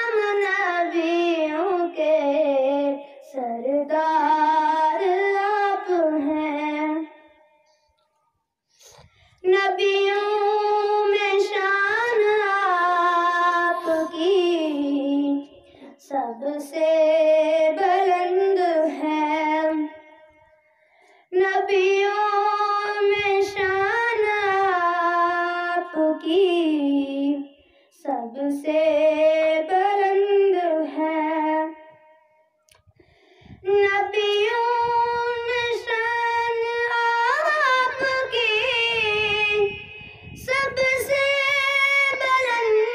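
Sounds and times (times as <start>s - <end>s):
boy singing unaccompanied: 0.0s - 7.2s, 9.4s - 20.0s, 21.3s - 31.8s, 33.5s - 42.9s.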